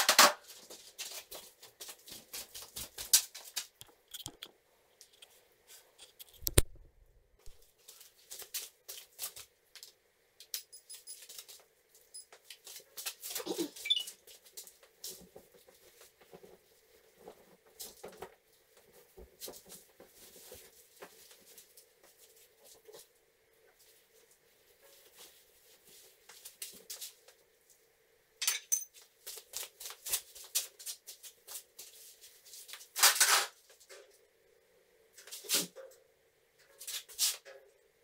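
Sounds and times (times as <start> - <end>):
sharp clicks and knocks: 3.8 - 5.3, 6.0 - 7.6
tools clattering on metal: 28.4 - 29.0.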